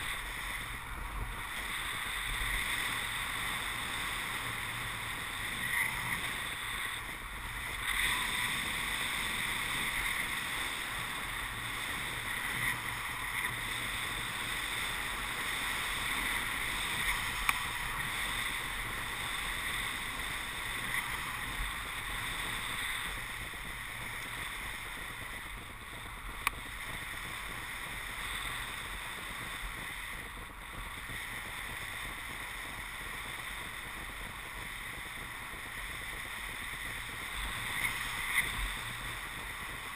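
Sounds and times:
faint clicks: 0:26.3 - 0:26.7.

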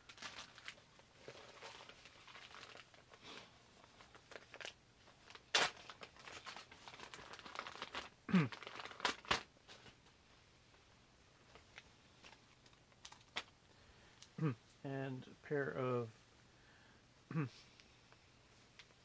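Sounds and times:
plastic packaging crinkling: 0:00.0 - 0:09.9, 0:11.5 - 0:13.6.

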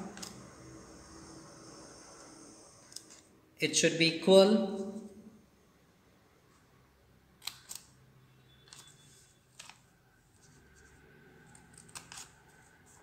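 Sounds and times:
scissors snipping paper: 0:11.5 - 0:13.0.

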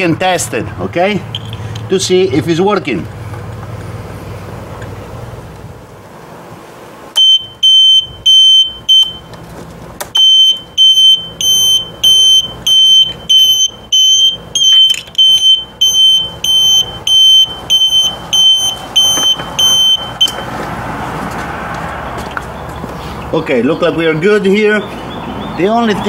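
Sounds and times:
piezo buzzer beeping: 0:07.2 - 0:09.3, 0:10.2 - 0:20.4.

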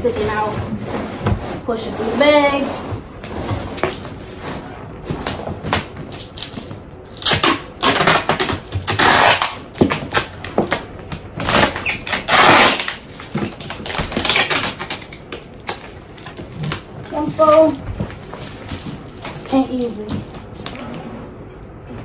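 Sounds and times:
storage bag rustling and crinkling: 0:15.7 - 0:21.0.

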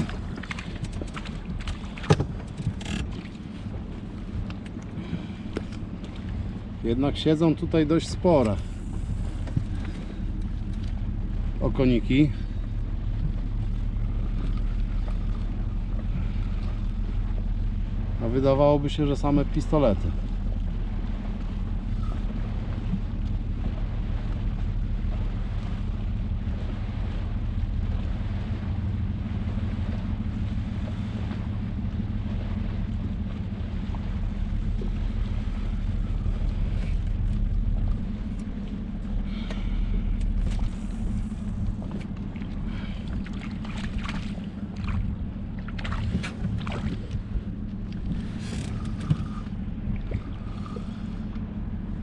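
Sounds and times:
boat motor humming: 0:00.0 - 0:52.0.

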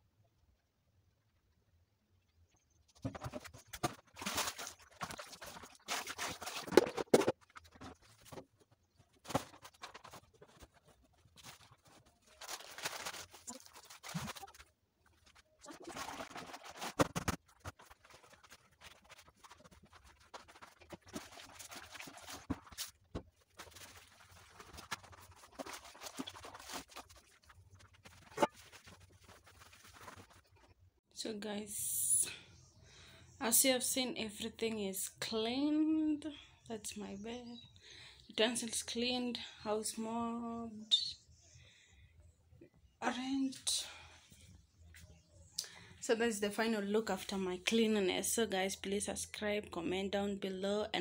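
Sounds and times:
plastic containers knocking and scraping: 0:02.8 - 0:30.6.

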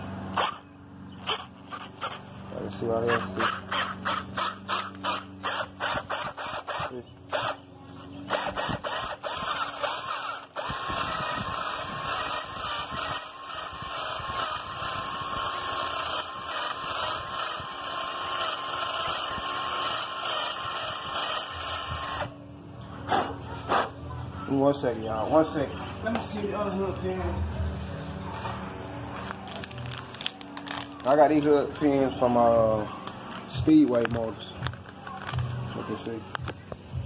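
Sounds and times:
cordless drill drilling: 0:03.4 - 0:07.6, 0:08.3 - 0:22.3.

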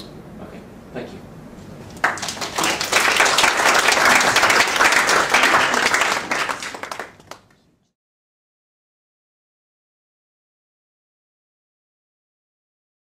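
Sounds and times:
audience applauding: 0:01.9 - 0:07.6.

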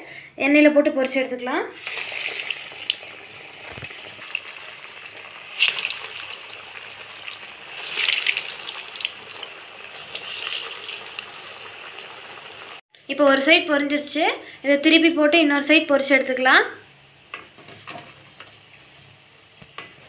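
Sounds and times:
oil sizzling and crackling: 0:01.7 - 0:12.8
patties deep-frying in hot oil: 0:01.7 - 0:12.8, 0:15.2 - 0:20.0.

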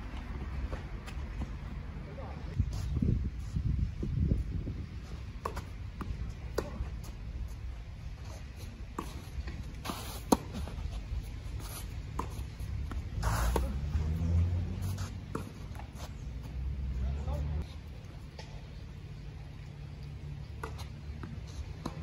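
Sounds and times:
racket striking tennis ball: 0:05.4 - 0:07.0, 0:08.9 - 0:10.8, 0:12.0 - 0:16.0
tennis ball bouncing: 0:05.4 - 0:07.2, 0:08.5 - 0:10.9, 0:11.5 - 0:16.6, 0:20.5 - 0:22.0
shoes sliding on clay: 0:08.2 - 0:16.6.

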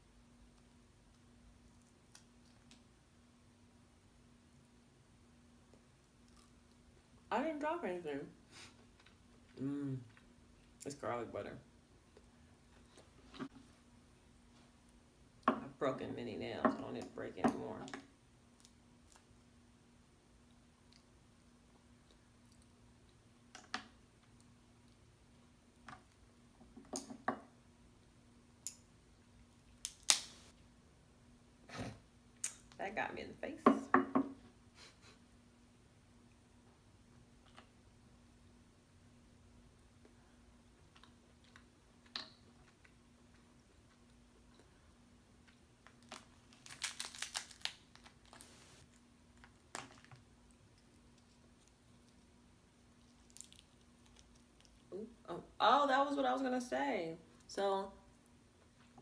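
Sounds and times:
crab shells cracking: 0:29.8 - 0:30.4, 0:45.8 - 0:48.5, 0:53.0 - 0:54.8.

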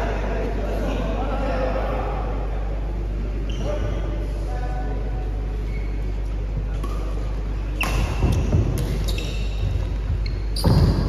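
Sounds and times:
steady low hum: 0:00.0 - 0:11.0
shoe squeaks on court: 0:07.8 - 0:11.0.

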